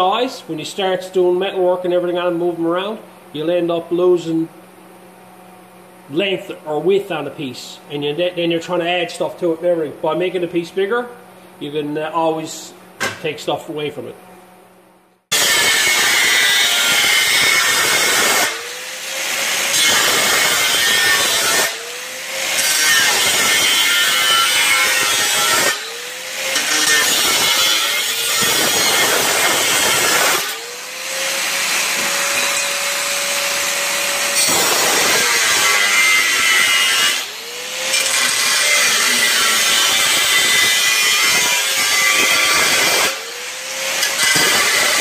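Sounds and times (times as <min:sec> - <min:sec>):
angle grinder cutting steel: 0:15.3 - 0:45.0.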